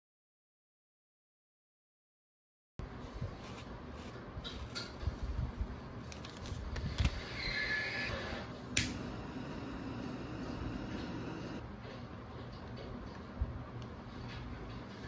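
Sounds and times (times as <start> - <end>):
paper packet crinkling: 6.0 - 7.2
sharp click: 8.8 - 9.0.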